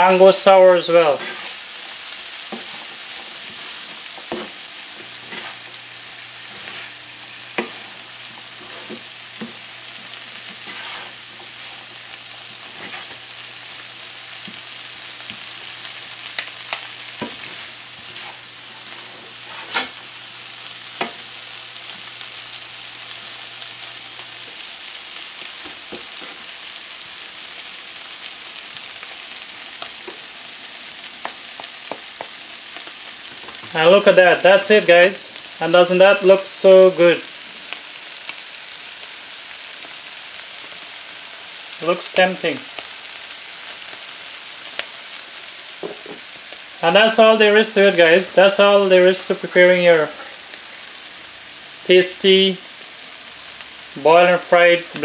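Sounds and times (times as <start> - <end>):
food sizzling in a frying pan: 0.0 - 55.0
spatula scraping a pan: 1.1 - 13.8, 17.2 - 20.1.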